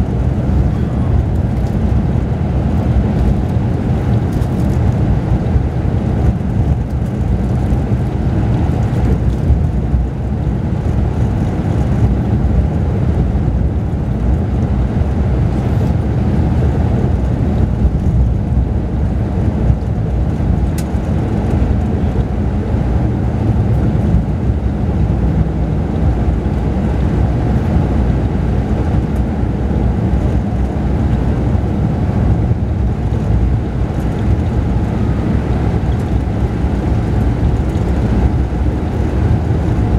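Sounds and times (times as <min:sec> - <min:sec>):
bus engine and road rumble: 0:00.0 - 0:39.9.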